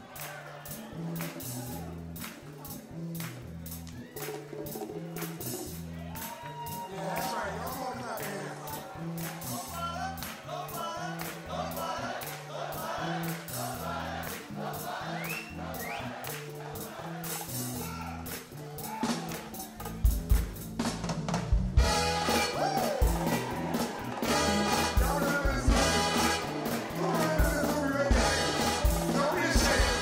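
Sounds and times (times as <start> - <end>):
soul band playing: 0.0 - 30.0
voices singing: 6.6 - 17.9, 22.3 - 30.0
stepping bass line: 19.9 - 30.0.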